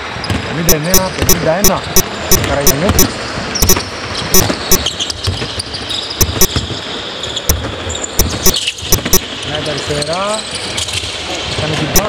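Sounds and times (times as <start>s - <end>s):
basketball bouncing on hardwood: 0.2s - 1.4s, 2.4s - 6.8s, 7.4s - 9.3s.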